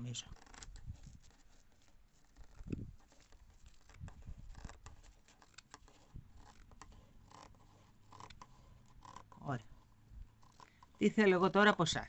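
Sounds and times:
scissors snipping fabric: 3.6s - 9.4s.

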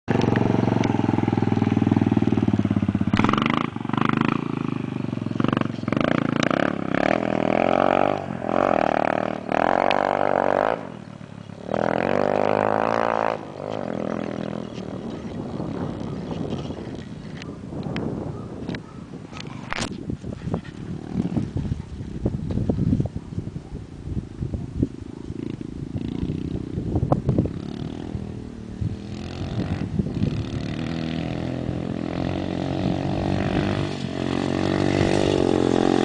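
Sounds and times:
dirt bike engine revving: 0.1s - 16.9s, 25.4s - 36.0s.

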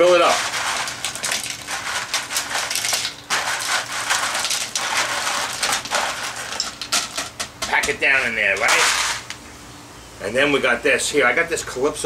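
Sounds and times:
ice cubes clattering into blender: 0.0s - 7.8s, 8.6s - 9.3s.

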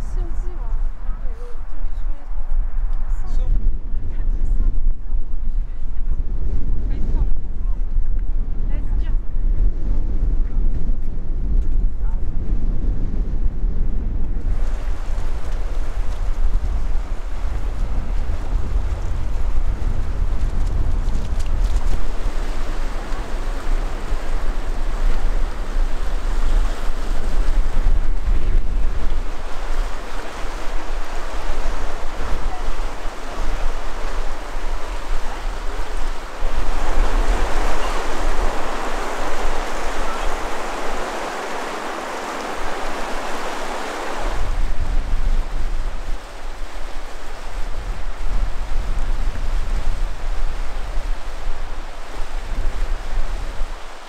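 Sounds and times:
wind buffeting microphone: 0.0s - 54.0s
river rushing: 14.5s - 20.2s, 21.1s - 54.0s.

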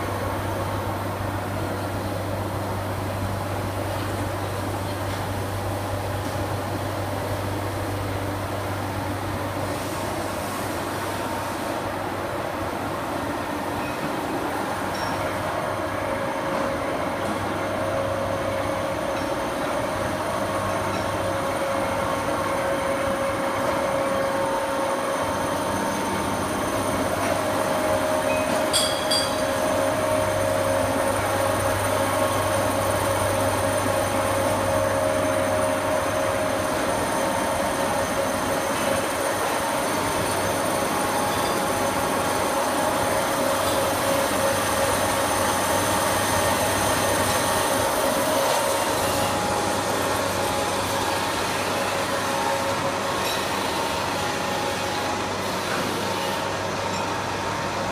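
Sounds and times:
machine tools running: 14.0s - 57.9s
high metallic clinks: 28.3s - 29.5s.

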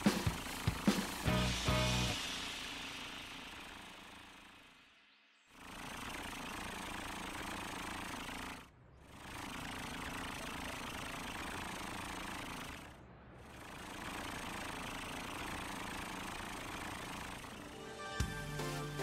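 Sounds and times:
cartoon fire truck engine: 0.0s - 4.9s, 5.5s - 19.0s.

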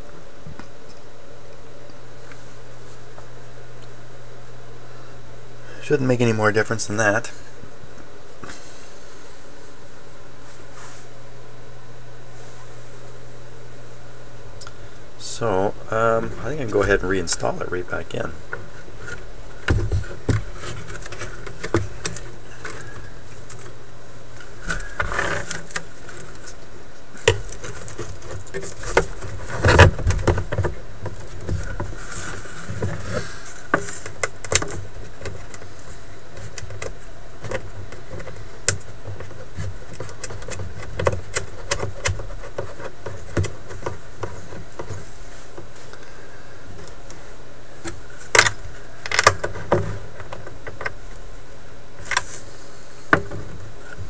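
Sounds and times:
steady low hum: 0.0s - 54.0s
clicks and rattles of handling: 18.5s - 23.8s, 24.4s - 46.1s, 47.8s - 51.2s.

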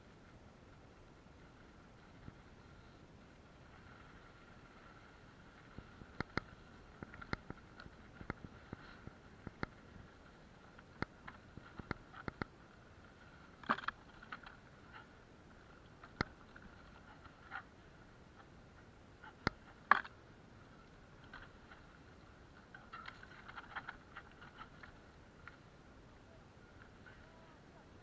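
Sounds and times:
small rattles: 13.4s - 15.1s
bike clicks and knocks: 13.6s - 14.4s.

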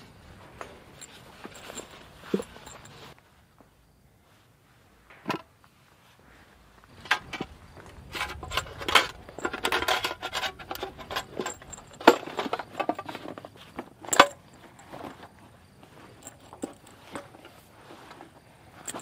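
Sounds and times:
metal clinks and knocks: 0.0s - 3.2s, 6.8s - 19.0s.

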